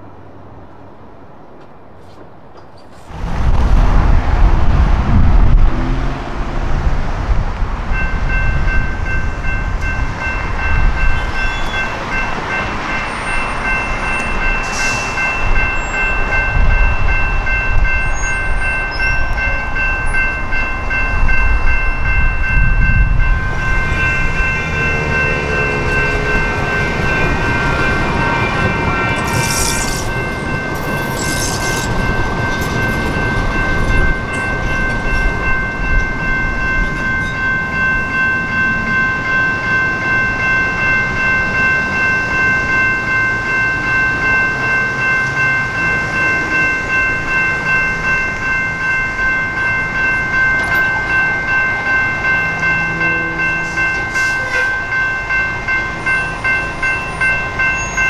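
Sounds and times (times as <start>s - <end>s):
train rumbling past: 0.0s - 58.0s
electronic crossing bell ringing: 7.9s - 58.0s.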